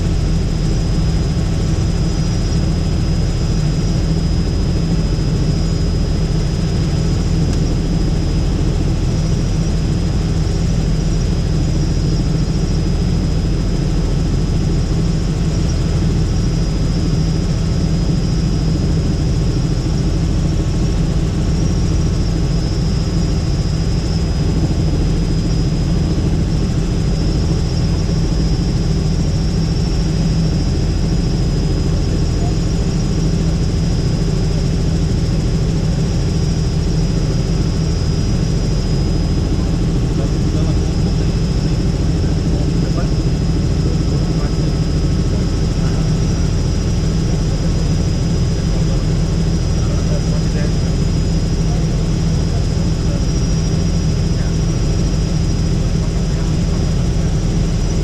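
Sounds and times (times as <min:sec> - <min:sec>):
helicopter rotor and engine drone: 0:00.0 - 0:58.0
high turbine whine: 0:00.0 - 0:58.0.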